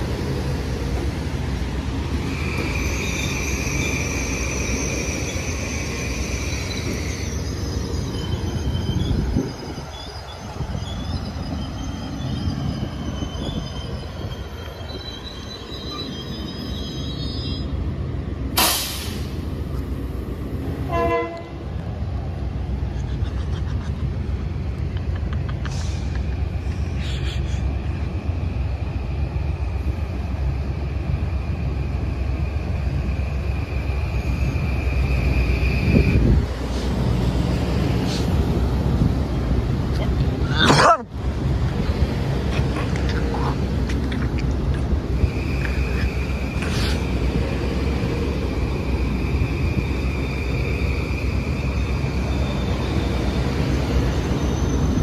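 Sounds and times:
train rumbling: 0.0 - 55.0
wheels squealing: 2.1 - 17.8, 41.6 - 55.0
train horn toot: 20.9 - 21.6.

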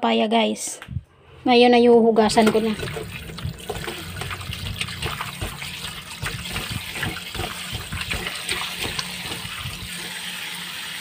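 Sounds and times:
tap running into bowl: 2.3 - 10.1
water splashing: 2.3 - 10.3.

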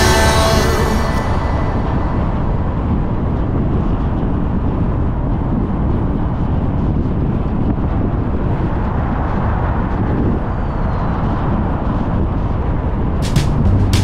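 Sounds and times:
music with sharp regular beats: 0.0 - 1.3, 13.2 - 14.0
car road and engine noise: 0.0 - 14.0.

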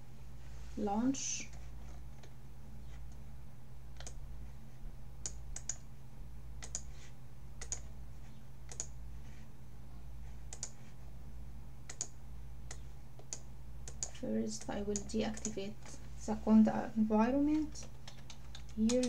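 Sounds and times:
steady low hum: 0.0 - 19.0
keyboard and mouse clicks: 4.0 - 4.2, 5.2 - 5.9, 6.6 - 6.9, 7.6 - 7.9, 8.7 - 9.0, 10.5 - 10.9, 11.9 - 15.6, 17.6 - 19.0.

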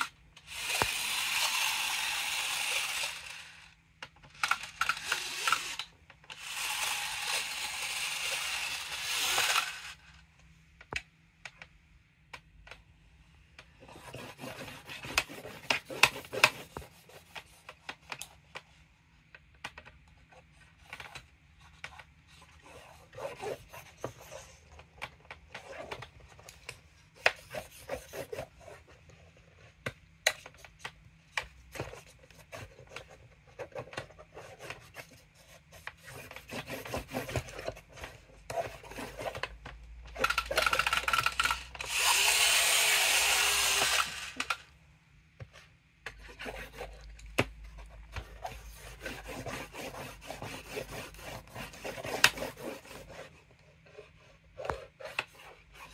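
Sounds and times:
pen scratching on drawing board: 13.8 - 17.8, 31.8 - 39.5, 46.1 - 47.1, 48.1 - 55.9
eraser slider scraping: 40.2 - 44.6.

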